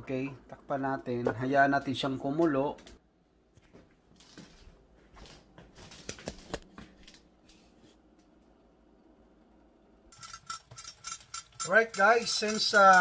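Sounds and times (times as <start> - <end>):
faint clicks and rustles: 2.7 - 8.7.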